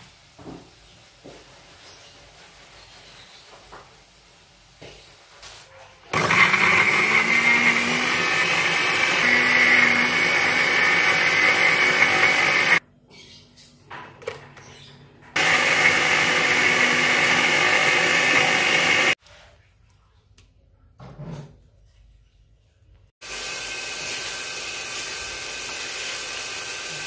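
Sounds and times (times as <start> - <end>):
electric blender grinding: 6.1 - 12.8, 15.4 - 19.2, 23.2 - 27.0.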